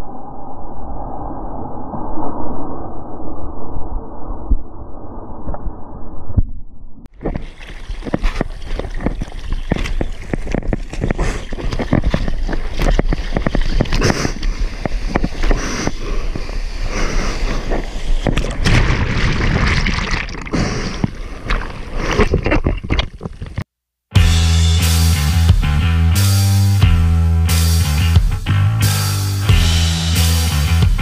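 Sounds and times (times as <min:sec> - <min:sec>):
seawater splashing and rushing: 0:07.1 - 0:22.4.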